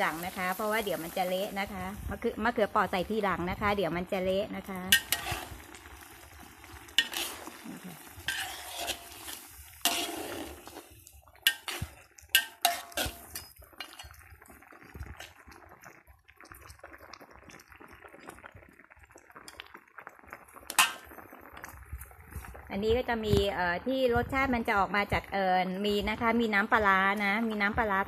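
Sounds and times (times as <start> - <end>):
metal spatula scraping a wok: 4.9 - 5.8, 6.8 - 14.2, 20.7 - 21.1.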